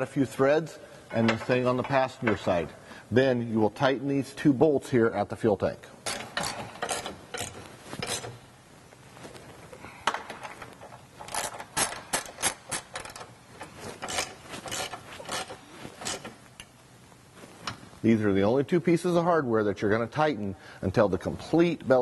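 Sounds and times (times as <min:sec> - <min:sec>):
hand ratchet clicking: 0:06.0 - 0:08.4, 0:10.0 - 0:16.8.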